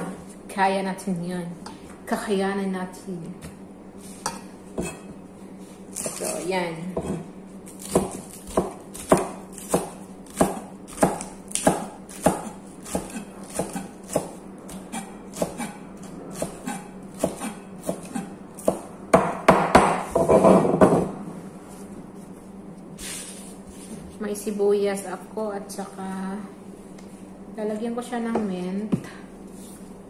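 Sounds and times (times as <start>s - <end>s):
knife chopping on cutting board: 7.8s - 15.8s, 16.4s - 20.4s.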